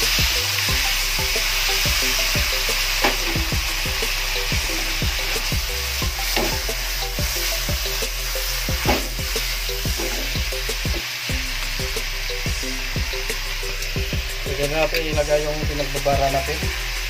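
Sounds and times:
meat sizzling in a wok: 0:00.0 - 0:17.0.

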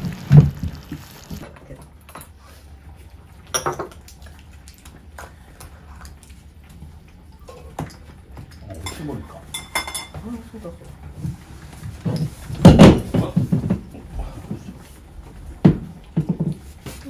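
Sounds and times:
tableware clinking: 0:08.8 - 0:10.2.

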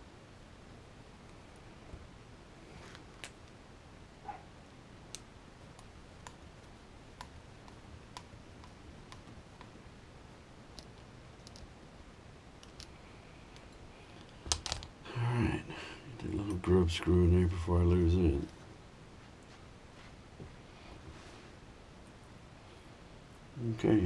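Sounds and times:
clicks of small parts being handled: 0:12.6 - 0:14.9.

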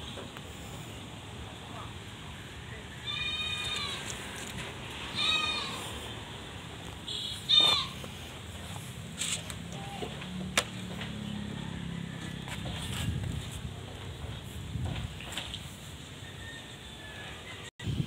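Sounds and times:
goat bleating: 0:03.0 - 0:06.2, 0:07.4 - 0:08.1, 0:09.7 - 0:10.2.

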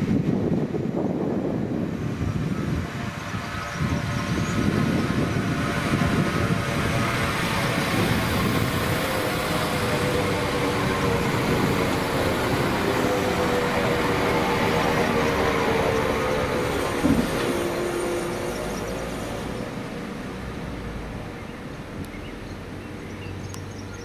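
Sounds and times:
diesel train engine: 0:00.0 - 0:24.0
train wheels on rails: 0:02.8 - 0:20.1.

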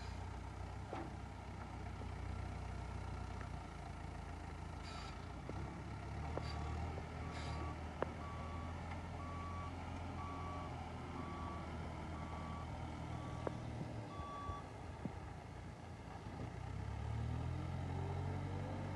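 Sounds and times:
heavy vehicle engine idling: 0:00.0 - 0:16.3
reversing alarm beeping: 0:07.2 - 0:11.6, 0:12.2 - 0:14.6.

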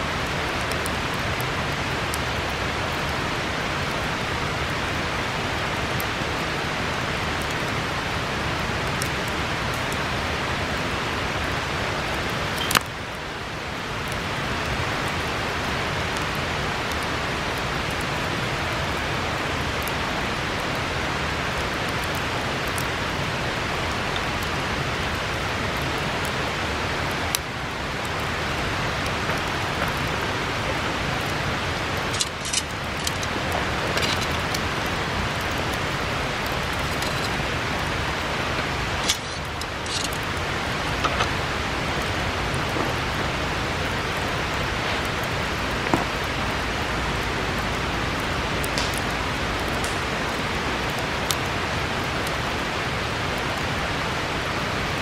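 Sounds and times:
river rushing: 0:00.0 - 0:55.0
bonfire wood popping: 0:11.4 - 0:13.1, 0:20.6 - 0:52.5.

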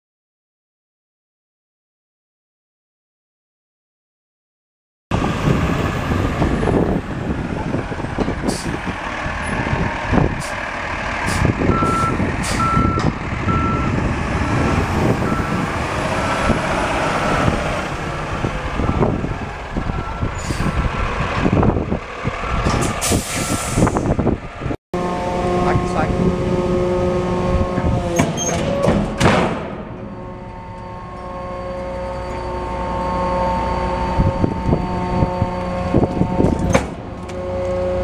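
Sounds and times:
diesel truck engine running: 0:05.1 - 0:38.0
backup alarm beeping: 0:11.7 - 0:14.0.

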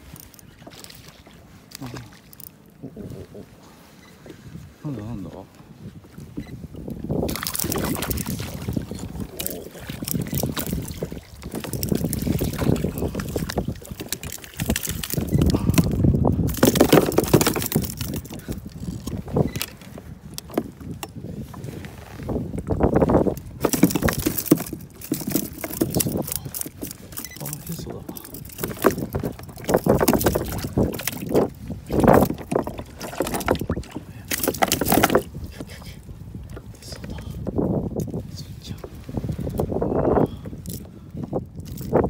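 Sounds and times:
water sloshing: 0:00.0 - 0:37.6
wind on microphone: 0:02.8 - 0:42.0
gear knocking against kayak: 0:06.2 - 0:38.1.

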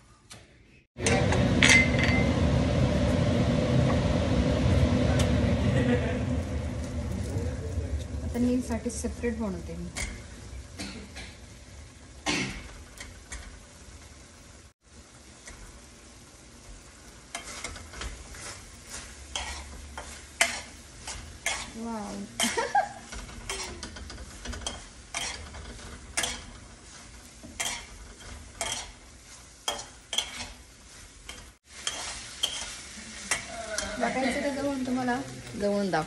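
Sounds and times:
faint sizzle: 0:02.3 - 0:36.0
metal utensil scraping a pan: 0:08.4 - 0:11.4, 0:17.3 - 0:35.6.

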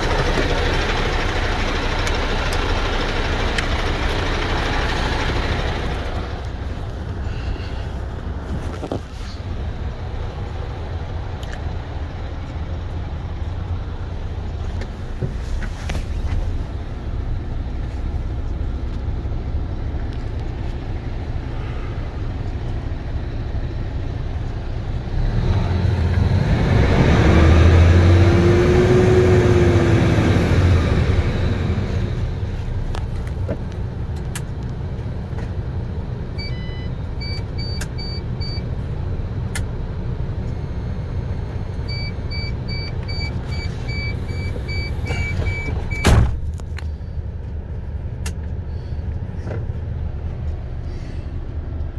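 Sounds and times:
diesel engine idling: 0:00.0 - 0:26.4, 0:27.2 - 0:51.9
short electronic beeps: 0:36.4 - 0:38.6, 0:41.9 - 0:46.1.

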